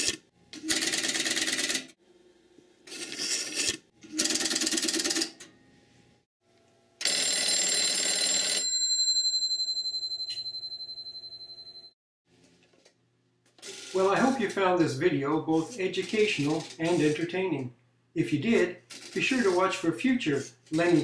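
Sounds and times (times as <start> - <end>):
rotary telephone dial whirring: 0.0 - 1.9, 2.9 - 5.4, 13.6 - 14.5, 15.6 - 17.2
telephone bell ringing: 7.0 - 12.0.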